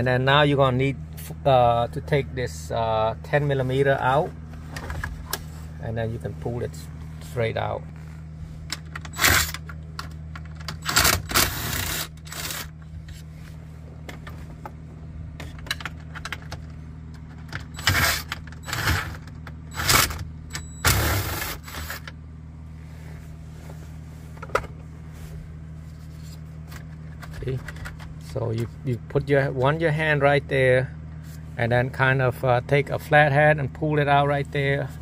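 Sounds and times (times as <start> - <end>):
steady low hum: 0.0 - 35.0
cordless drill bursts: 9.2 - 9.6, 10.8 - 12.7, 19.8 - 20.2, 20.8 - 22.0.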